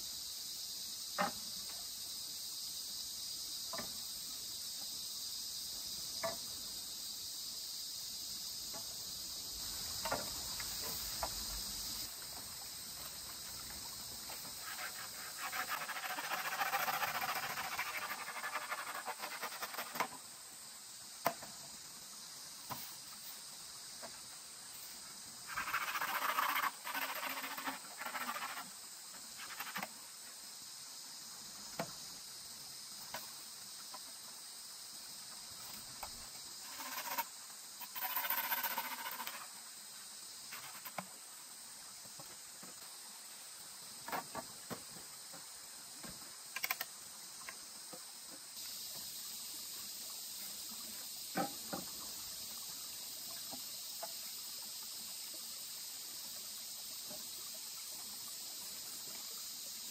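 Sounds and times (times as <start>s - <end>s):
forest insects chorus: 0.0s - 59.9s
rough scratchy noise: 14.6s - 20.1s, 25.5s - 28.7s.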